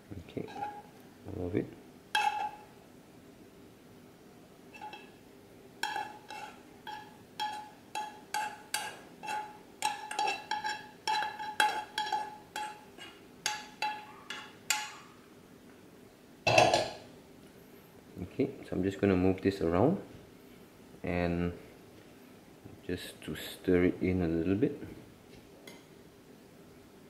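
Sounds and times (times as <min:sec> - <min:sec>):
frying pan scraping: 0:00.4 - 0:00.9, 0:05.8 - 0:14.5.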